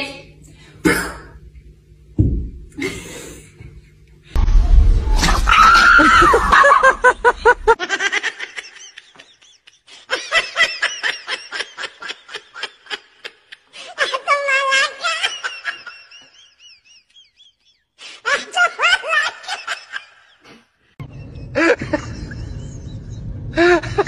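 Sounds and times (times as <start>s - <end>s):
people laughing: 5.6s - 24.0s.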